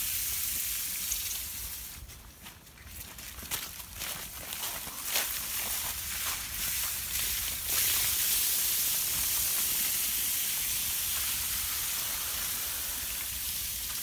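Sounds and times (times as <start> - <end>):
steady high hiss: 0.0 - 2.2, 5.2 - 14.0.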